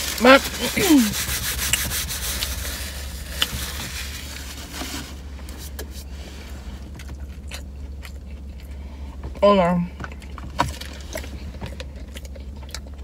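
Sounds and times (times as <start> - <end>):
paper napkin rustling: 0.0 - 6.4
car cabin hum: 0.0 - 13.0.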